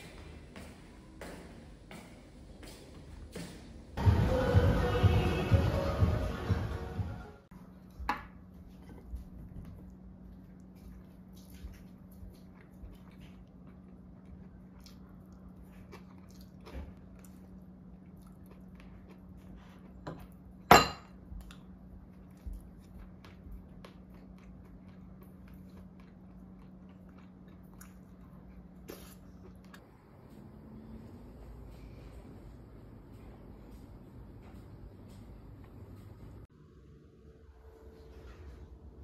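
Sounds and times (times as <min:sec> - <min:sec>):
quiet chewing: 0:08.8 - 0:20.5, 0:21.3 - 0:30.6.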